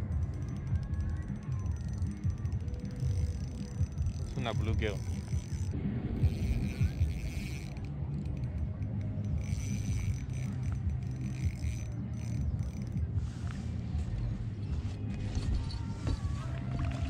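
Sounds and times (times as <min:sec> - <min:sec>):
fishing reel gears whirring: 0:00.0 - 0:17.0
low rumble: 0:05.0 - 0:17.0.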